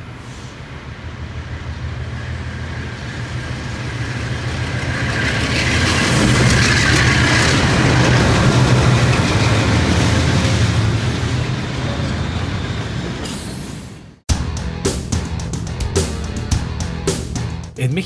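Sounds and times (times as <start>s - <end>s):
rail and wheel noise: 0.0s - 14.3s
diesel locomotive engine throb: 14.3s - 17.8s.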